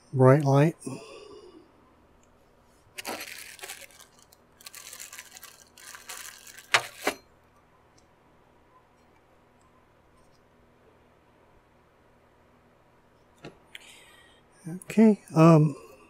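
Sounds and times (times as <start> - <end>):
plastic bag crinkling: 2.9 - 7.2.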